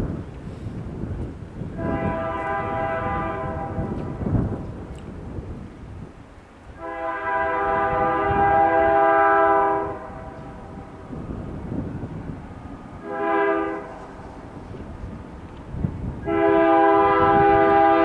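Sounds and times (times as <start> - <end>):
locomotive air horn blasts: 1.7 - 4.3, 6.8 - 10.9, 13.0 - 14.2, 16.2 - 18.0.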